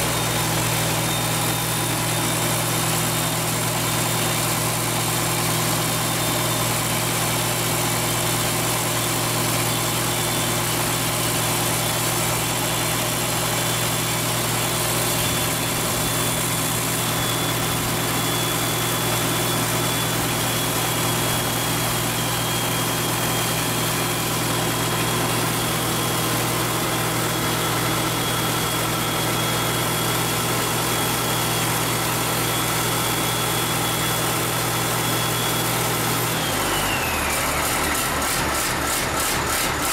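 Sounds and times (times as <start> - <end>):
turbo high whistle: 9.4 - 38.7.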